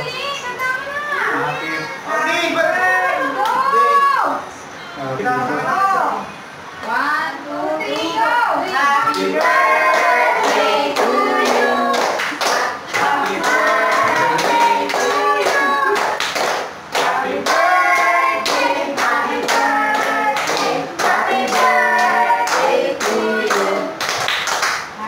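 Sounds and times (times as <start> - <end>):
group of voices singing together: 7.5 - 24.3
hands clapping: 9.1 - 25.0.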